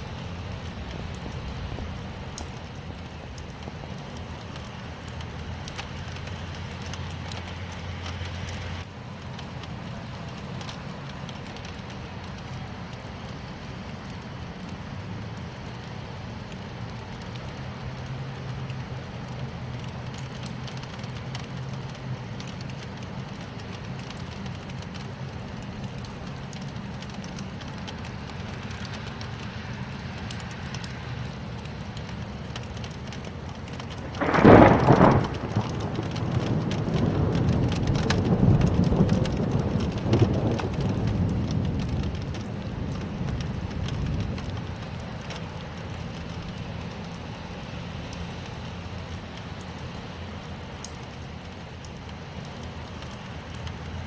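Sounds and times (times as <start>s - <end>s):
steady rain: 0.0s - 54.0s
thunder clap and rumbling: 33.9s - 45.0s.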